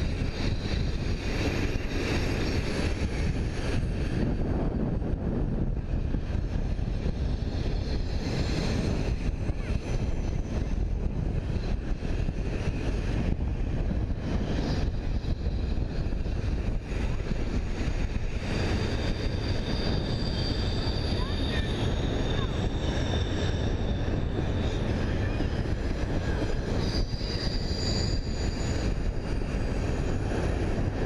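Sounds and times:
train wheels rumbling on rail: 0.0 - 31.0
high wheel squeal: 18.2 - 30.9.

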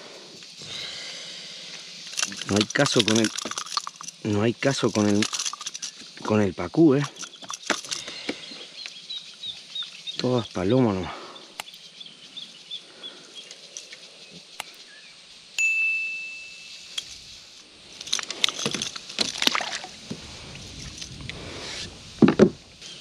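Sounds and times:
fishing gear clicking and rattling: 1.7 - 8.9, 17.8 - 21.3
bell ding: 15.6 - 16.8.

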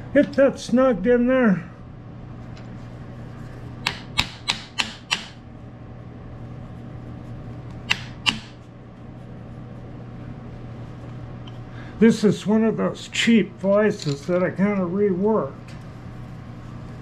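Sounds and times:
steady low hum: 0.0 - 17.0
sharp metal clicks and taps: 3.8 - 5.4.

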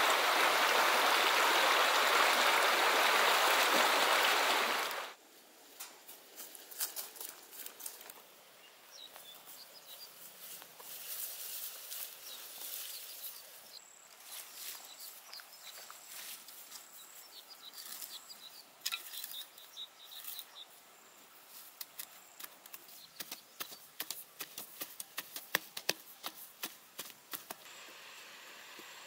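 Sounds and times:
footsteps rustling through grass: 9.2 - 18.1
digging tools striking soil: 21.8 - 27.6.

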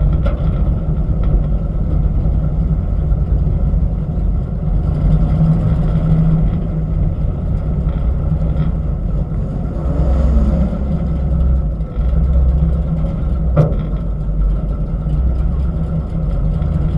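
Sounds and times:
truck engine running low: 0.0 - 16.9.

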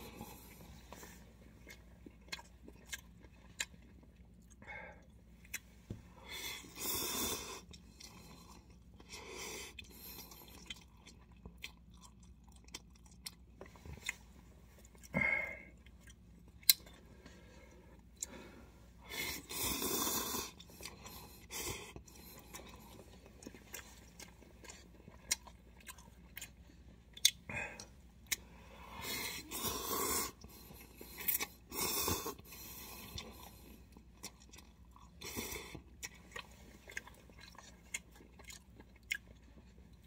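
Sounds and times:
chewing with wet mouth smacks: 0.0 - 6.0, 6.6 - 18.4, 19.4 - 29.6, 30.3 - 40.0
person slurping noodles: 29.0 - 30.4.

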